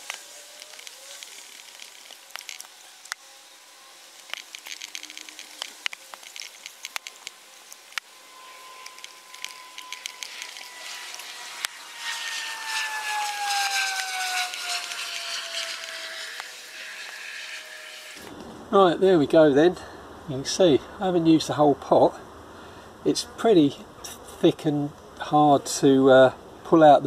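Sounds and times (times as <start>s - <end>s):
cling film crinkling: 0.0s - 3.3s, 3.9s - 17.2s
steady hum falling in pitch: 0.0s - 19.2s.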